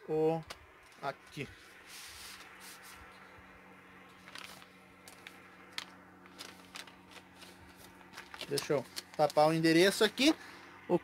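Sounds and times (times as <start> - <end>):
small sharp crackles: 4.1 - 9.6
packaging rustling and crinkling: 4.1 - 10.0.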